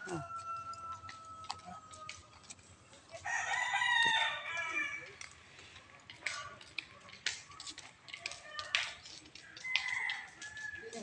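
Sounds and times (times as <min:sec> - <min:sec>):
rooster crowing: 0:00.0 - 0:02.2, 0:03.2 - 0:05.0.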